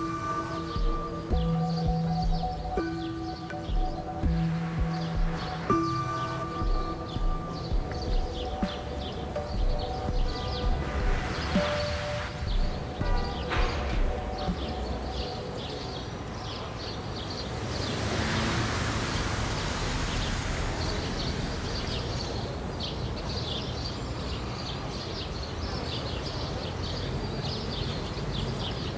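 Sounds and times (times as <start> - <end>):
low traffic rumble: 0.0 - 28.9
small birds chirping: 0.0 - 28.9.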